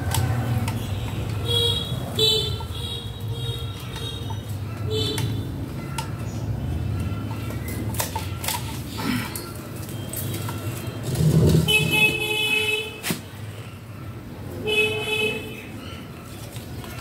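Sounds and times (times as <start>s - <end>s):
vehicle horn: 10.0s - 13.0s.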